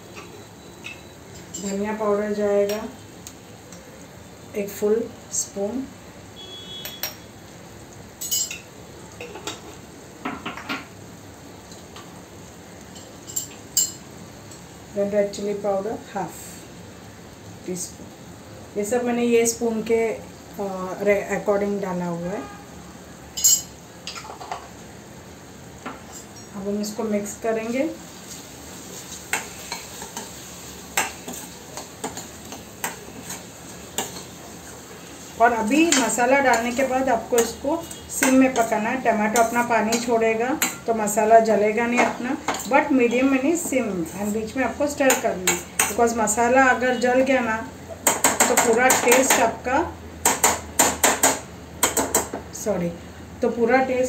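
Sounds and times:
faint sizzle: 0.0s - 54.0s
faint steady hiss: 0.0s - 54.0s
metal spoon clinking on pan: 0.1s - 1.9s, 6.8s - 7.3s, 8.2s - 9.7s, 23.4s - 24.6s, 34.0s - 34.3s, 35.6s - 40.9s, 45.0s - 46.0s
spoon scraping metal pan: 35.5s - 40.9s.

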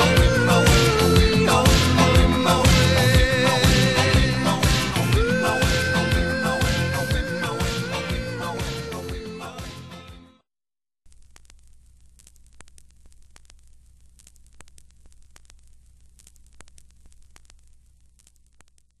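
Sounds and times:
music: 0.0s - 10.4s
small crackles: 11.0s - 19.0s
low hum and static hiss: 11.1s - 19.0s.

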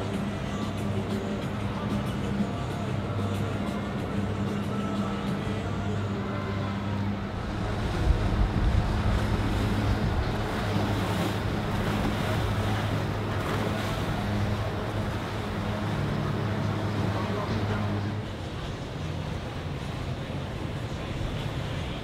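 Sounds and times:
boat engines droning: 0.0s - 22.0s
water rushing from wake: 0.0s - 22.0s
wind buffeting microphone: 7.2s - 13.9s.

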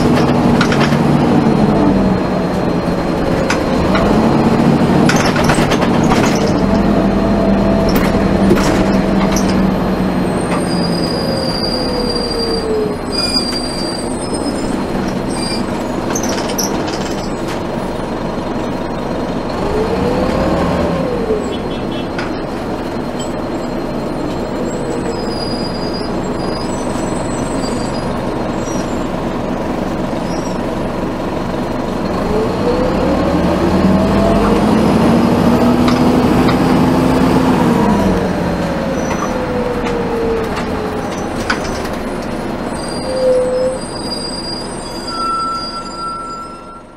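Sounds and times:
bus engine: 0.0s - 46.9s
high-pitched brake squeals: 9.3s - 17.5s, 21.4s - 29.2s, 30.2s - 30.7s, 38.9s - 39.4s, 42.6s - 46.9s.

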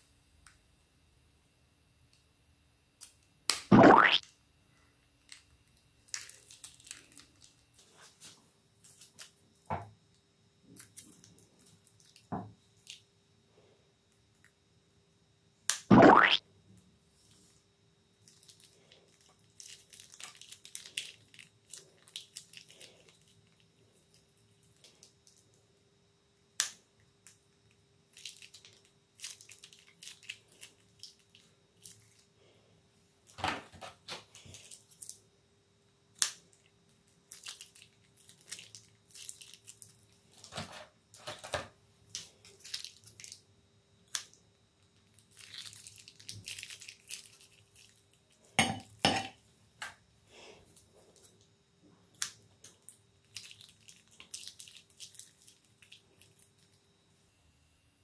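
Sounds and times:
plastic piping bags crinkling: 6.0s - 9.4s, 10.8s - 13.0s, 18.2s - 25.5s, 28.1s - 32.3s, 34.3s - 35.2s, 36.5s - 41.4s, 42.1s - 43.4s, 45.0s - 48.5s, 52.1s - 56.8s.

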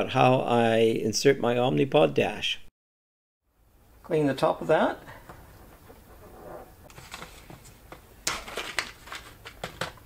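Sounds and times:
packaging rustling and crinkling: 6.9s - 10.0s.

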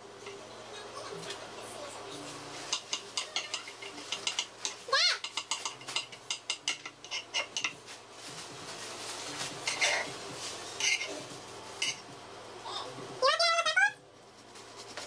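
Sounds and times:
knife scraping: 7.0s - 7.7s, 9.6s - 11.2s.

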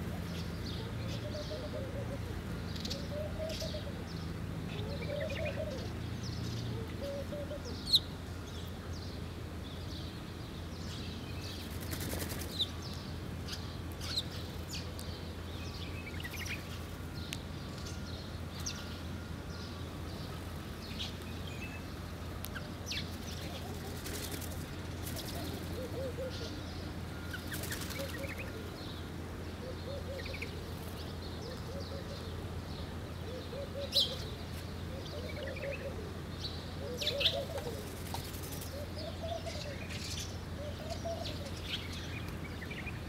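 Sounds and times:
dove cooing: 0.0s - 8.1s, 22.5s - 32.6s, 33.2s - 41.7s
birds chirping: 0.0s - 43.0s
steady low hum: 0.0s - 43.0s.

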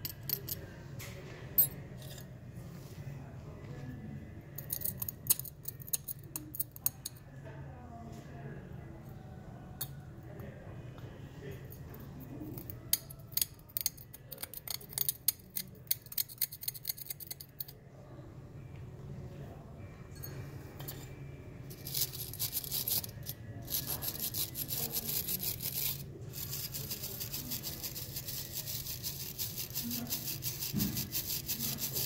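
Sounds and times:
metal tool scraping aluminum casting: 12.6s - 17.7s, 21.7s - 32.0s
wire brush scrubbing metal: 21.7s - 32.0s.

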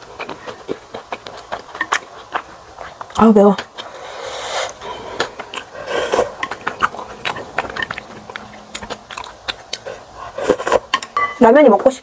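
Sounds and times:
wet chewing: 0.0s - 11.0s
breathy hisses: 3.8s - 6.4s.

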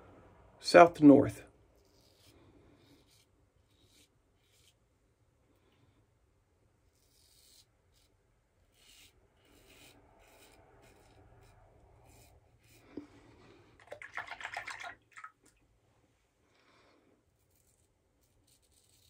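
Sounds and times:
razor scraping stubble: 1.7s - 4.9s, 6.8s - 12.8s, 17.4s - 19.0s.

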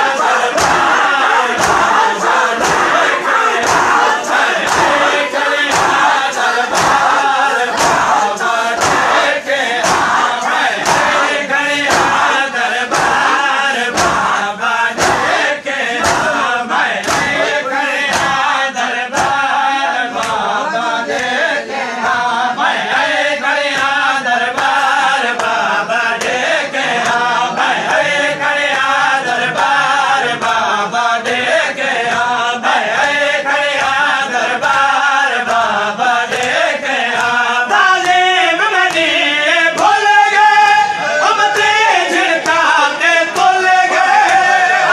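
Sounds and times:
men chanting in unison: 0.0s - 44.9s
hands striking chests: 0.5s - 14.4s, 15.0s - 16.4s.

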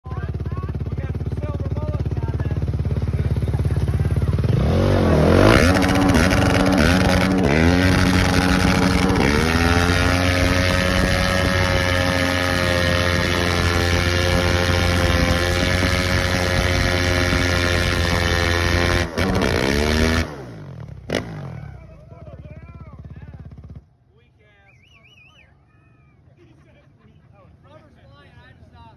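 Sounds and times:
quad engine revving hard: 1.8s - 21.8s.

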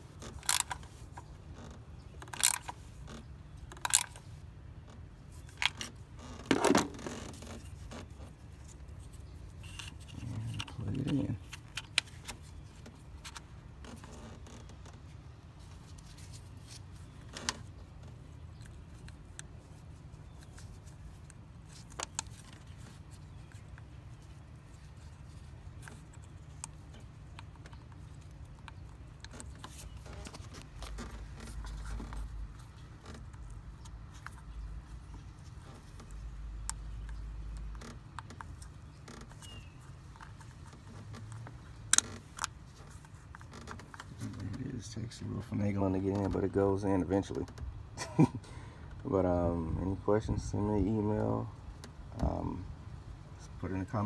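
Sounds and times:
plastic connector clicks and scrapes: 0.1s - 1.4s, 2.0s - 4.4s, 5.3s - 44.6s.

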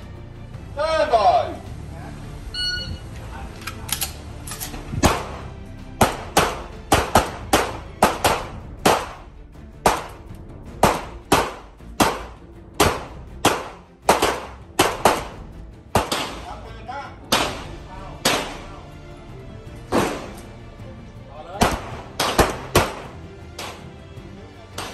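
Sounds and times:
pistol shots: 5.0s - 9.2s, 9.8s - 16.5s, 17.2s - 18.7s, 19.9s - 20.5s, 21.6s - 23.9s.

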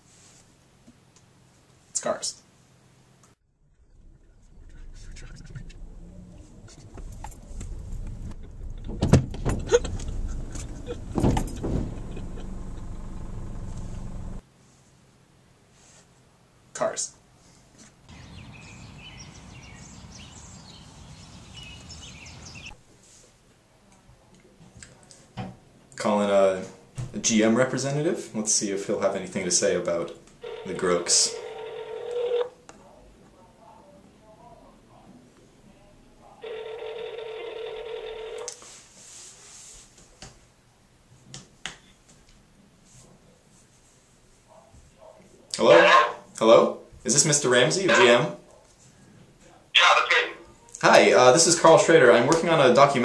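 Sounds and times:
steady low rumble: 3.4s - 14.4s
songbirds chirping: 18.1s - 22.8s
telephone ringback tone: 30.4s - 32.5s, 36.4s - 38.5s.

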